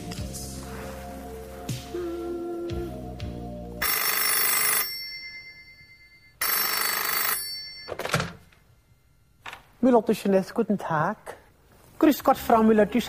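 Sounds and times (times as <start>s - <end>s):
music: 0.0s - 3.8s, 12.1s - 13.0s
telephone ringing: 3.8s - 9.4s.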